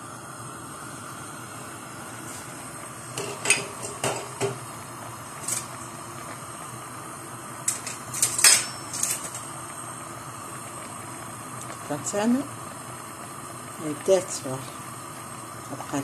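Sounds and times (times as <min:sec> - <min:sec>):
potatoes boiling on gas burner: 0:00.0 - 0:16.0
metal utensils clinking on pot: 0:07.7 - 0:09.4.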